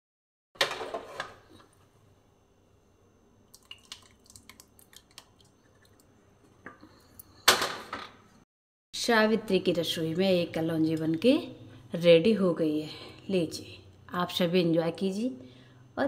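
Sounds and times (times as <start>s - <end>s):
thick gravy pouring: 3.5s - 6.1s
soft drips: 3.5s - 6.2s.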